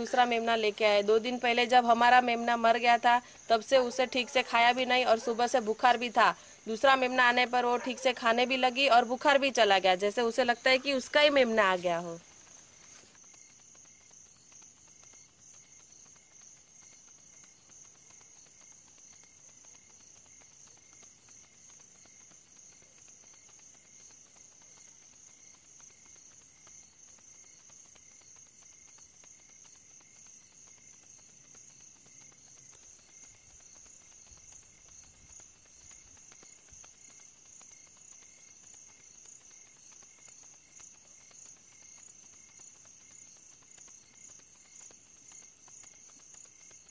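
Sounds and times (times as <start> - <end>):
crickets chirping: 0.0 - 46.9.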